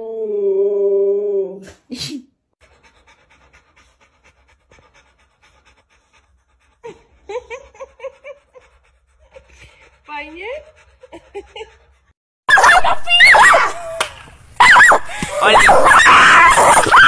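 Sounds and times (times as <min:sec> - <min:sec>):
dog panting: 0:02.6 - 0:12.2.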